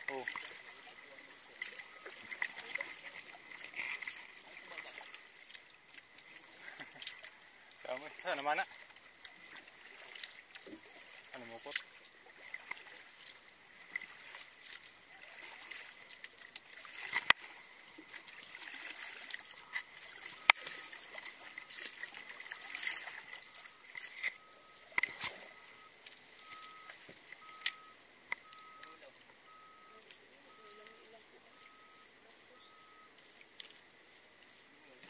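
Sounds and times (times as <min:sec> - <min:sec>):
faint short beeps: 0:00.0 - 0:05.1, 0:19.4 - 0:33.2
paddle splashing water: 0:00.0 - 0:35.0.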